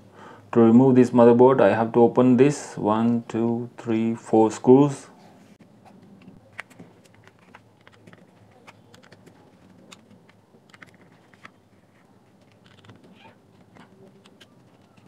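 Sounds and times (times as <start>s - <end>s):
small clicks and taps on plastic: 6.2s - 11.6s.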